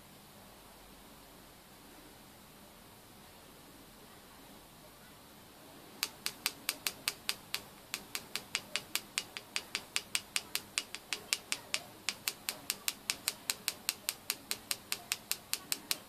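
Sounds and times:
rapid sharp ticks: 6.0s - 16.0s.

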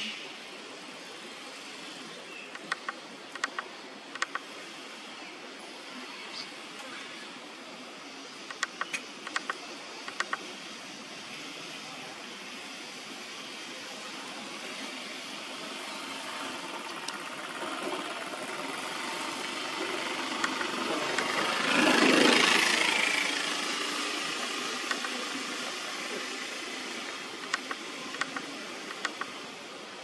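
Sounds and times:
steady rushing noise: 0.1s - 30.0s
sharp clicks: 2.5s - 4.5s, 8.4s - 10.5s, 19.8s - 21.4s, 23.3s - 25.8s, 27.0s - 29.4s.

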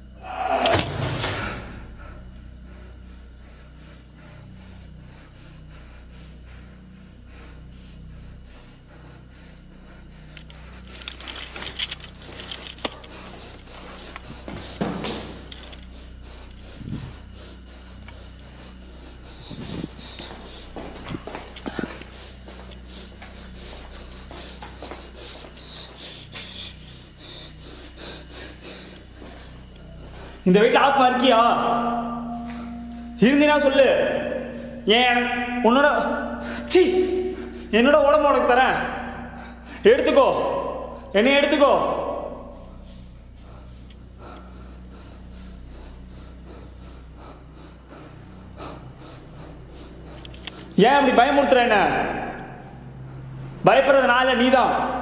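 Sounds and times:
low steady hum: 0.0s - 55.0s
person breathing: 1.4s - 30.5s, 31.6s - 33.2s, 34.0s - 37.8s, 38.4s - 41.2s, 42.2s - 50.8s, 52.2s - 53.7s
faint clicks and rustles: 10.3s - 16.6s
thin high tone: 29.9s - 39.3s.

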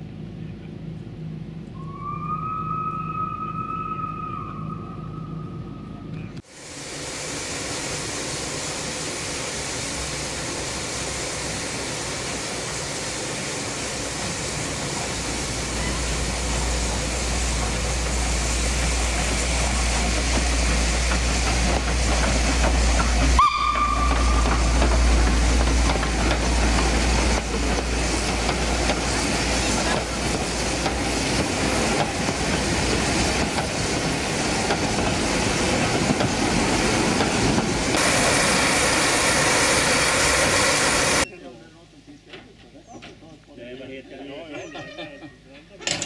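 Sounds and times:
train low rumble: 0.0s - 43.5s
steam whistle: 1.8s - 5.8s, 23.4s - 24.8s
steam locomotive hissing: 6.4s - 41.3s.

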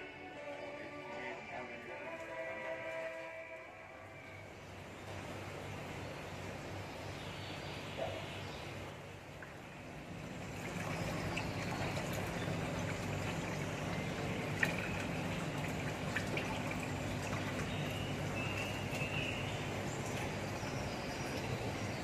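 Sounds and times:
low steady hum: 0.0s - 22.0s
water trickling into a stone basin: 7.8s - 22.0s.

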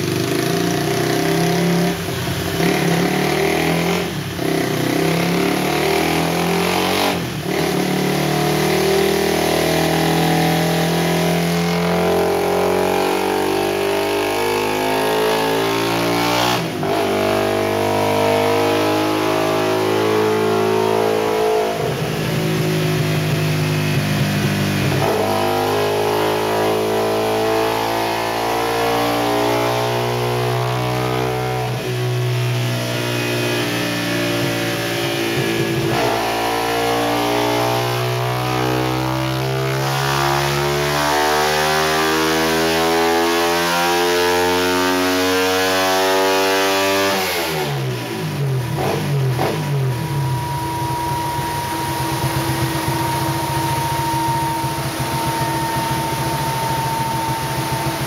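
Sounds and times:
motorcycle engine revving: 0.0s - 58.0s
steady whine: 48.1s - 58.0s.

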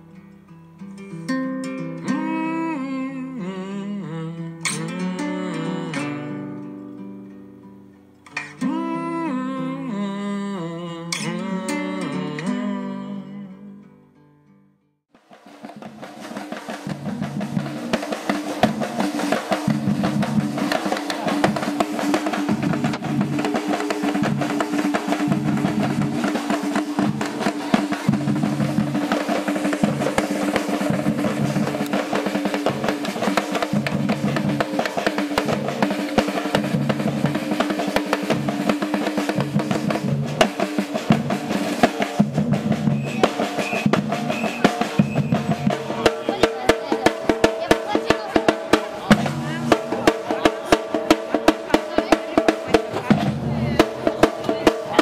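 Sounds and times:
drums in a fast rhythm: 8.3s - 10.0s, 15.1s - 55.0s.

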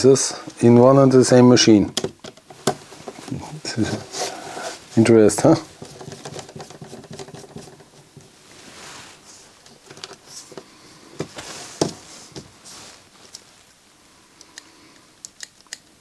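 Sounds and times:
sharp clicks of small parts: 14.4s - 15.9s.

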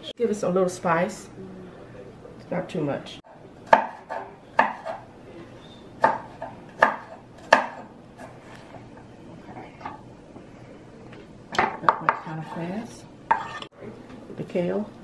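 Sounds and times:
knife chopping on wooden board: 3.7s - 5.0s, 6.0s - 8.4s.

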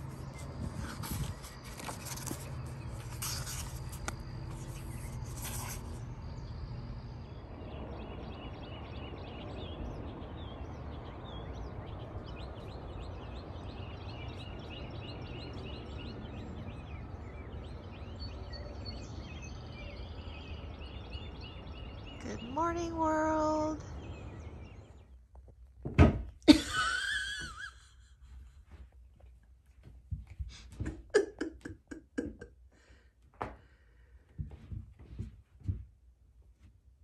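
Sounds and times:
songbirds chirping and singing: 6.0s - 25.4s.

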